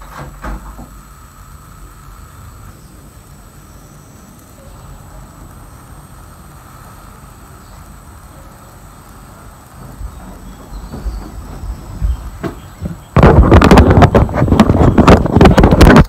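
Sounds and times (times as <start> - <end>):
outdoor background rumble: 0.0 - 16.0
faint high steady tone: 2.8 - 6.0.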